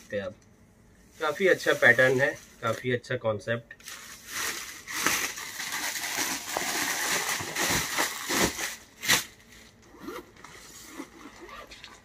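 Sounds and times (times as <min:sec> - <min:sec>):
plastic packaging crinkling: 0:03.8 - 0:09.8.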